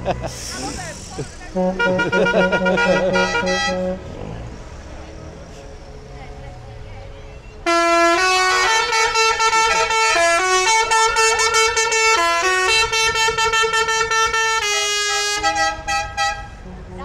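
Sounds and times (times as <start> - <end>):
musical horn playing a tune: 1.5 - 4.4, 7.6 - 16.5.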